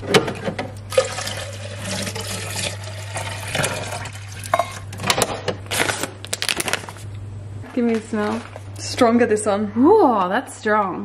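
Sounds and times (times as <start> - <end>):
water pouring into a tank: 0.9 - 4.5
plastic bag crinkling: 5.8 - 7.1.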